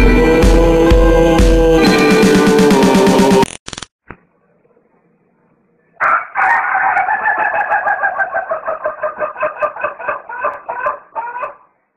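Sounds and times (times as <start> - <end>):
rooster crowing: 6.0 - 11.7.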